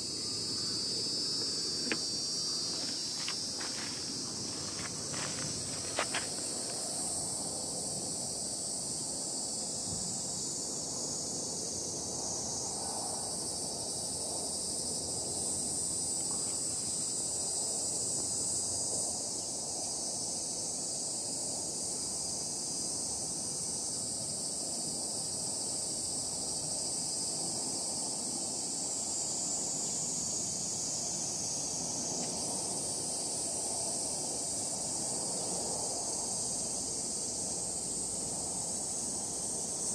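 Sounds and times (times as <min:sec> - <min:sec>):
insects buzzing: 0:00.0 - 0:39.9.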